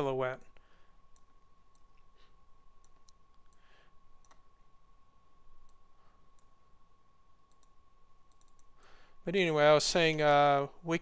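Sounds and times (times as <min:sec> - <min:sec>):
computer mouse clicks: 0:02.8 - 0:04.5, 0:05.6 - 0:06.5, 0:07.4 - 0:08.8.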